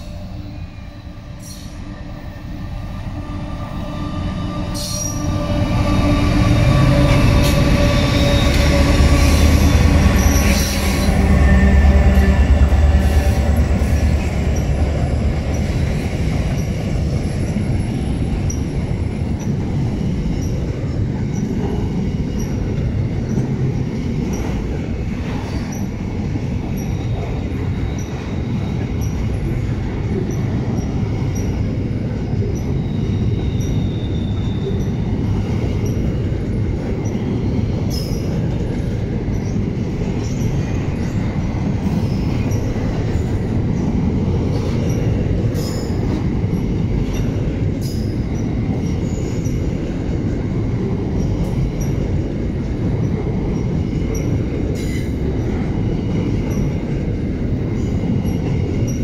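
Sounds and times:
locomotive engine drone: 0.0 - 20.6
train wheels rumbling on rails: 0.0 - 59.0.

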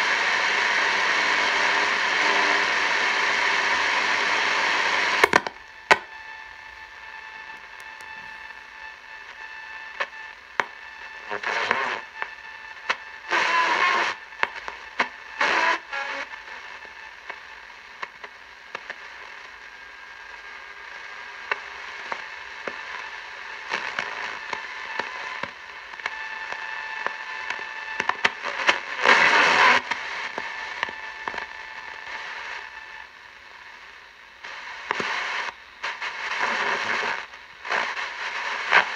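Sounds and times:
radio crackle: 0.0 - 38.9
radio static hiss: 0.0 - 38.9
radio signal bursts: 0.1 - 17.2.

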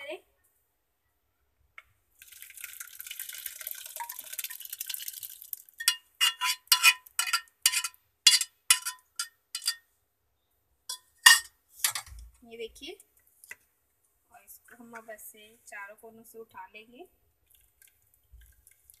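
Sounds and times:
liquid pouring into strainer: 2.2 - 6.1, 17.4 - 19.0
spatula scraping steel pot: 5.8 - 9.8, 10.9 - 12.1.

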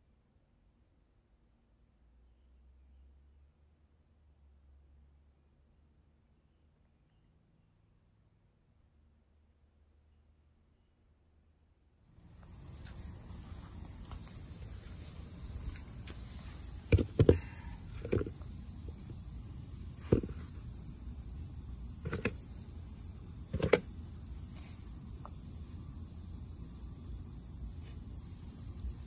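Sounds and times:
steady high hiss: 12.1 - 29.0
tomatoes thumping into bucket: 16.8 - 18.4, 20.0 - 20.6, 23.5 - 23.9.

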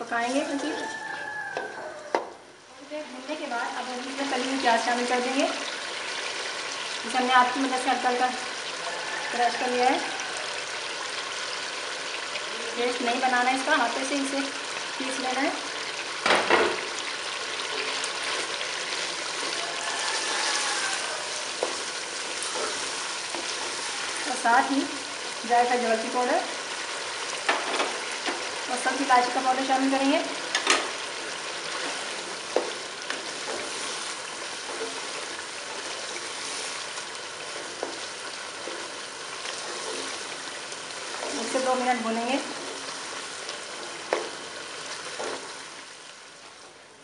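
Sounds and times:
gravy bubbling and sizzling: 0.0 - 47.0
spatula stirring: 17.5 - 24.4, 30.6 - 45.6
metal spoon stirring: 31.7 - 36.6.

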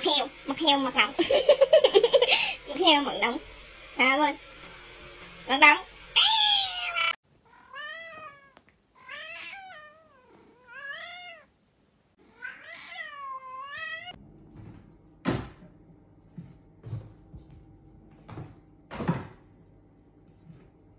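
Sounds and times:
cat meowing: 6.2 - 11.5, 12.2 - 14.2.

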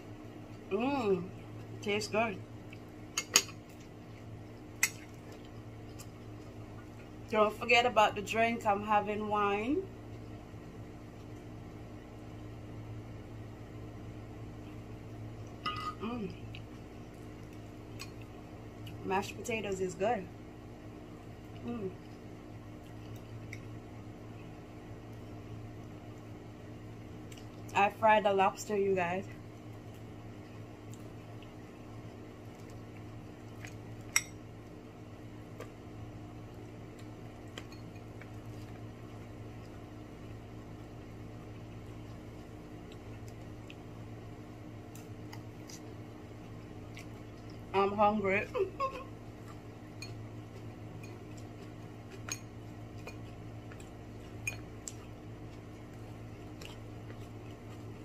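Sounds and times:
low hum with hiss: 0.0 - 58.0
tableware clinking: 15.6 - 16.0.

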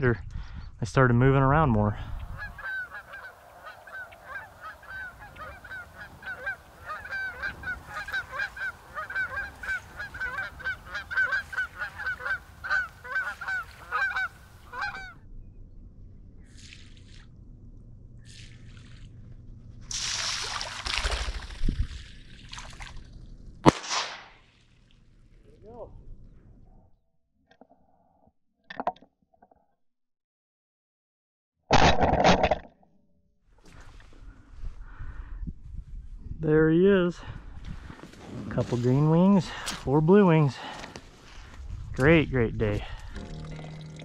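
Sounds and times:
geese honking in flight: 2.2 - 15.2.

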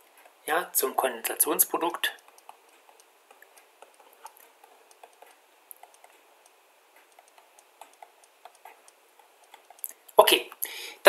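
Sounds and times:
stylus clicking on tablet: 1.7 - 10.1.

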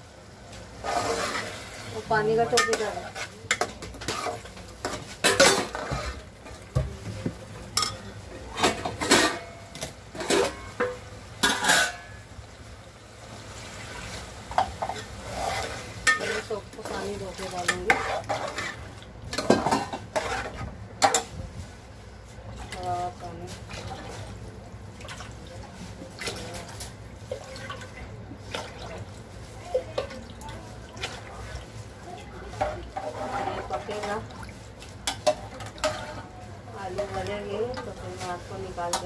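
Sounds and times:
spoon scraping metal pot: 14.8 - 21.3, 32.6 - 34.2.

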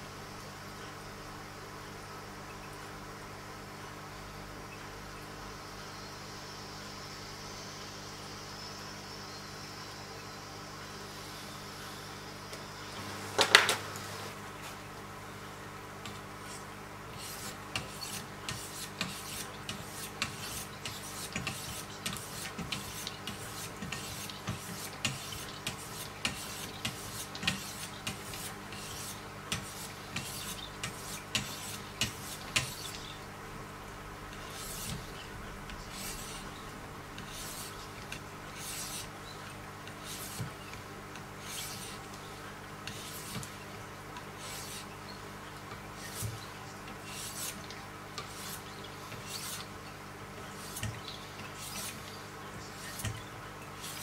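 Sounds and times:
sharpening stones rasping on blade: 17.2 - 33.1, 34.4 - 35.1, 35.9 - 36.5, 37.2 - 37.8, 38.6 - 39.1, 41.4 - 42.0, 42.9 - 43.5, 47.1 - 47.6, 51.6 - 52.0.

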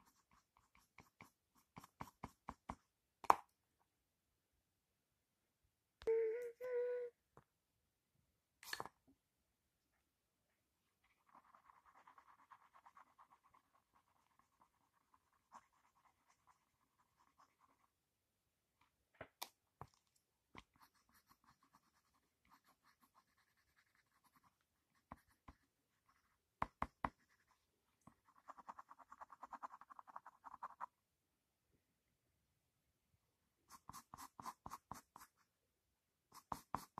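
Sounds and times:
pencil scratching on paper: 0.0 - 2.8, 11.0 - 17.9, 20.6 - 30.9, 33.7 - 35.5, 36.3 - 36.9.

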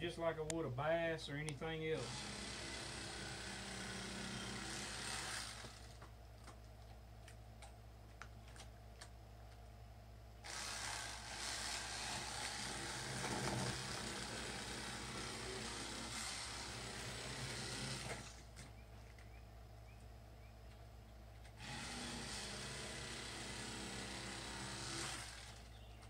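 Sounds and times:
electric fillet knife running: 10.5 - 18.4, 21.6 - 25.6.

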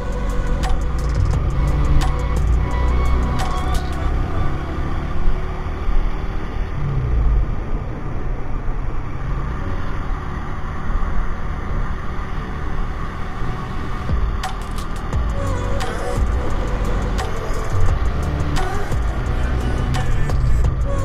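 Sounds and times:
motorcycle engine running: 0.0 - 5.8, 14.0 - 21.0
wind and road noise: 0.0 - 21.0.

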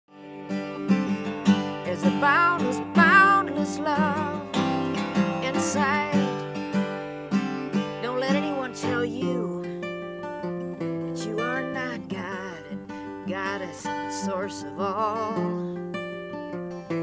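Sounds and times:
strummed acoustic guitar: 0.1 - 17.0.

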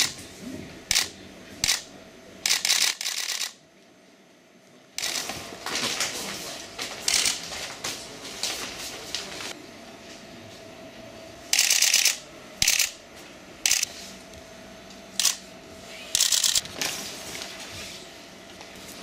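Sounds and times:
rustling and crinkling packages: 5.1 - 9.6.

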